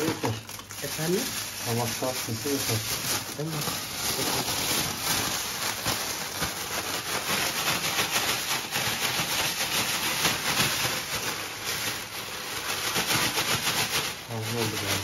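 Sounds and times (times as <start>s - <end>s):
sugar rustling in plastic bag: 0.0s - 15.0s.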